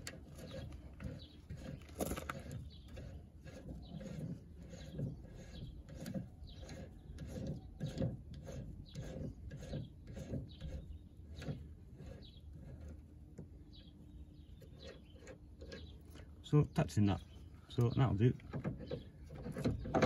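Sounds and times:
rasping rubbing strokes on thread: 0.0 - 13.5.

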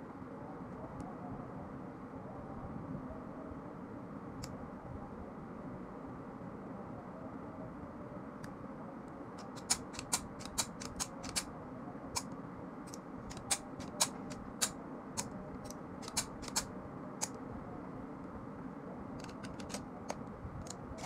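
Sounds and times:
pistol parts clicking and clacking: 9.4 - 11.5, 12.9 - 15.3, 16.0 - 16.6, 19.2 - 20.2.

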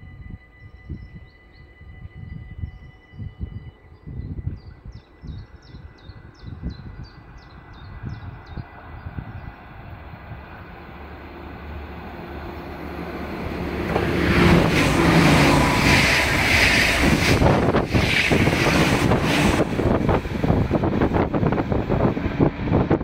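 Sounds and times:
wind buffeting microphone: 0.0 - 23.0
train wheels rushing on rail: 8.6 - 23.0.

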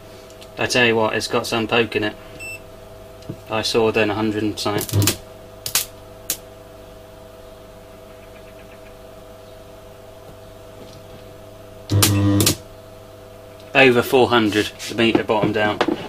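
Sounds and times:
loud electrical buzz: 0.7 - 7.3, 9.9 - 15.8
transformer humming: 3.5 - 6.4, 11.8 - 12.7
sharp electrical cracks: 4.8 - 6.4, 11.9 - 12.6.

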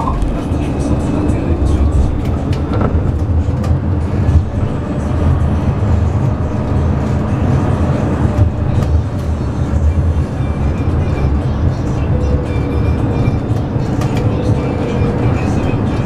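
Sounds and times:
tram wheels rumbling on rails: 0.0 - 16.0.

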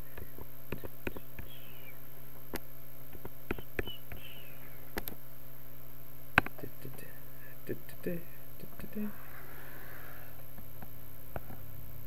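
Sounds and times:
low electrical hum: 0.0 - 12.0
computer mouse clicks: 0.2 - 1.6.

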